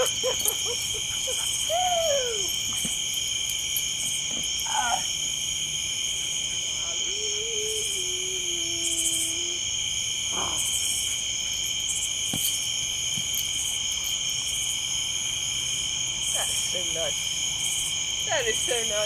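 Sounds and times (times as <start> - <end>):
crickets trilling: 0.0 - 19.0
pulsing insect buzz: 7.1 - 11.2.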